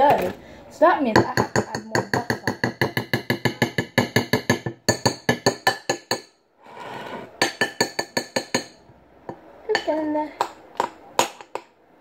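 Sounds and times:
scraping in bowl: 0:06.6 - 0:07.4.

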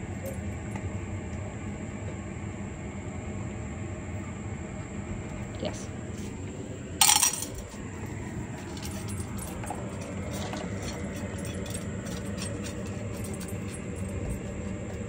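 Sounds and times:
dry food rattling into metal bowl: 0:07.0 - 0:07.7
dog eating from metal bowl: 0:08.6 - 0:15.0.

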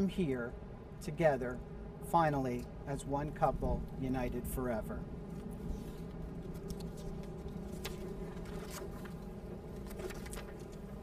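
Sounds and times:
faint steady hum: 0:00.0 - 0:11.0
wind rumble on microphone: 0:03.3 - 0:11.0
paper rustling and clicking: 0:05.3 - 0:11.0.

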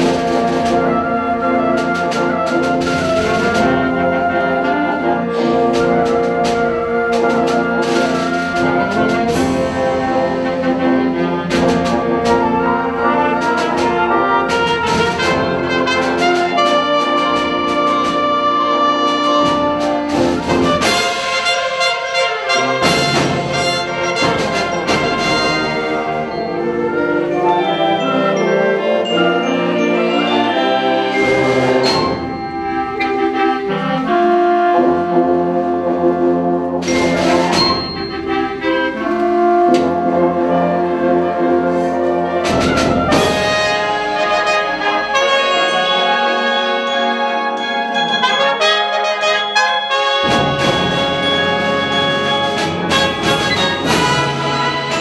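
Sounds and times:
concert wind band playing: 0:00.0 - 0:55.0
sharp percussion strikes: 0:11.5 - 0:33.2, 0:36.8 - 0:40.0, 0:42.4 - 0:55.0.

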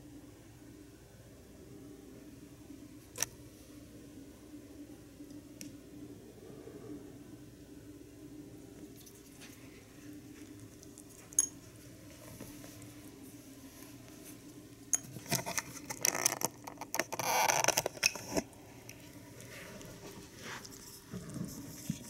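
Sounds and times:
rabbit eating: 0:08.7 - 0:16.8, 0:18.2 - 0:22.0.

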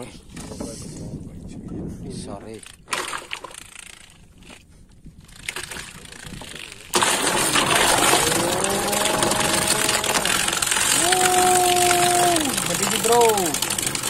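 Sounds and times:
motor whine: 0:07.8 - 0:13.7.

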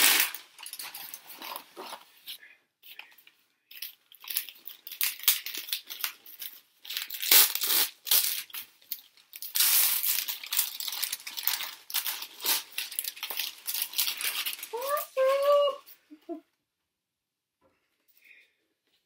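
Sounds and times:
packing paper crinkling and rustling: 0:00.0 - 0:02.2, 0:03.7 - 0:15.6.

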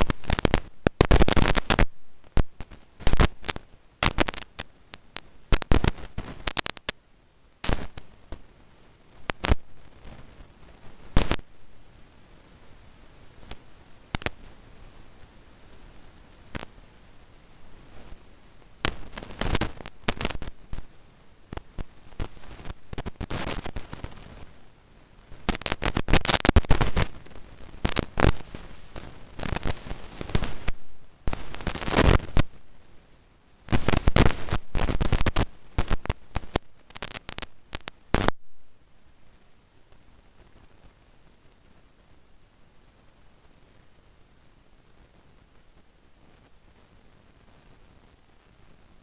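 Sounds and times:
loud crackling clicks: 0:00.0 - 0:07.0, 0:07.6 - 0:08.5, 0:09.2 - 0:11.5, 0:13.4 - 0:14.5, 0:16.5 - 0:16.7, 0:18.8 - 0:20.9, 0:21.5 - 0:24.6, 0:25.3 - 0:32.6, 0:33.7 - 0:38.5.

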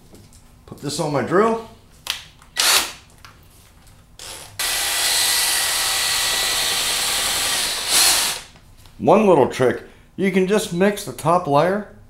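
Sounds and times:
cordless drill spinning paddle mixer: 0:04.2 - 0:08.5.

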